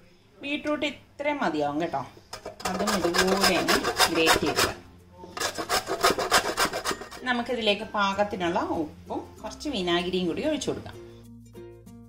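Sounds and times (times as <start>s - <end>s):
grating on metal box grater: 2.4s - 4.8s, 5.4s - 7.3s.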